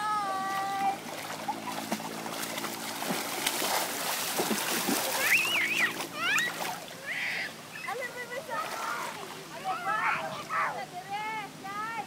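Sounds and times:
pool water splashing: 0.0 - 12.0
child's high voice: 6.2 - 8.0.

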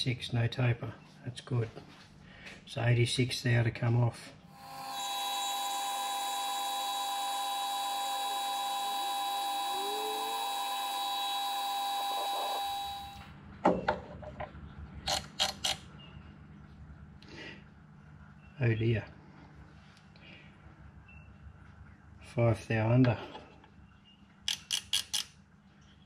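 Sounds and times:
metal lathe whining: 4.5 - 13.2.

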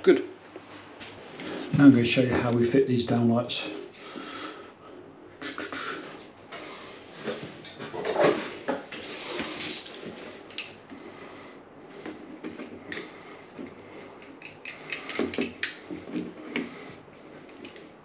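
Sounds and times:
pliers clicking and snipping: 14.2 - 15.8.

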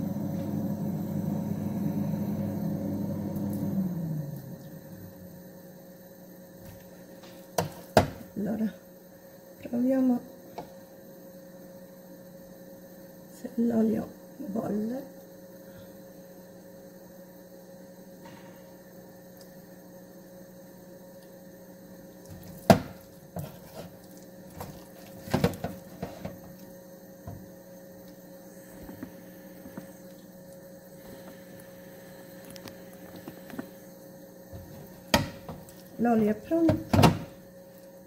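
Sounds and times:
low hum: 0.0 - 7.0.

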